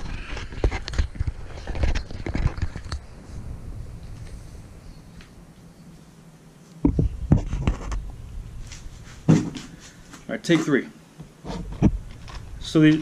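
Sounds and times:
camera handling knocks and rubbing: 6.8s - 8.0s, 9.2s - 9.7s.

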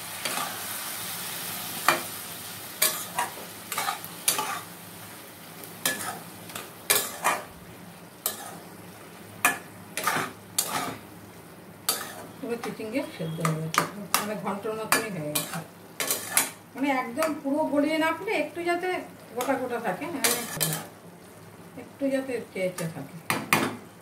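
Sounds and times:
food sizzling in frying: 0.0s - 24.0s
spatula scraping a pan: 2.8s - 4.7s, 5.8s - 7.5s, 8.3s - 8.7s, 9.5s - 11.0s, 11.9s - 13.4s, 15.0s - 16.6s.

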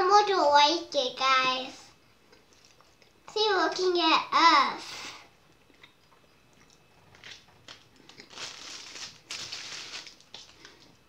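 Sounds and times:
plastic wrapper crinkling: 7.1s - 11.0s.

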